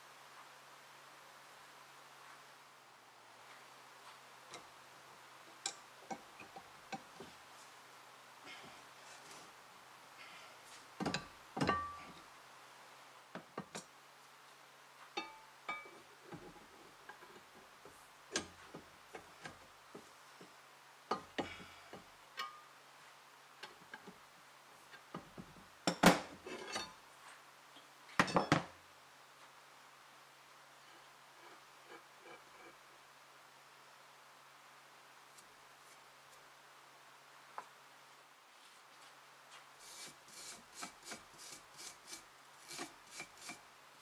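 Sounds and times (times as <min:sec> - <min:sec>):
wrenches clanking on cast iron: 0:11.0 - 0:12.2.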